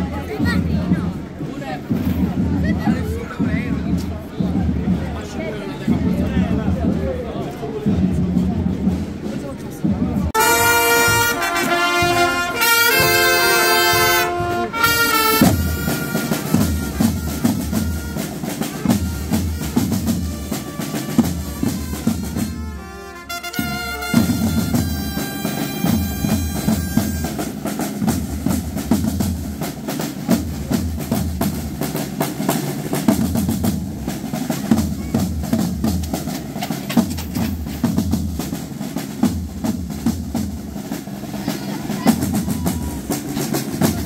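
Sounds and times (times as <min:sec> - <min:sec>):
steady drum beats: 0:00.0 - 0:44.0
brass band playing a march: 0:10.1 - 0:44.0.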